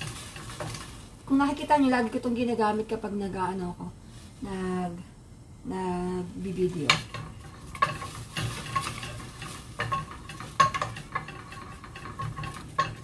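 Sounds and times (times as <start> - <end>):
wooden spoons scraping a pot: 0.0 - 2.2, 6.6 - 13.0
water sizzling in hot pot: 0.0 - 2.4, 6.7 - 13.0.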